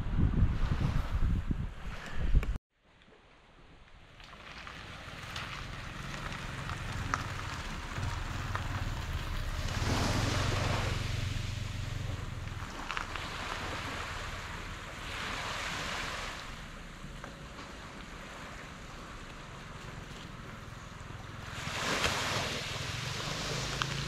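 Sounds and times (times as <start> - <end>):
wind buffeting microphone: 0.0 - 2.6, 5.1 - 17.1
sea waves washing in: 4.2 - 24.0.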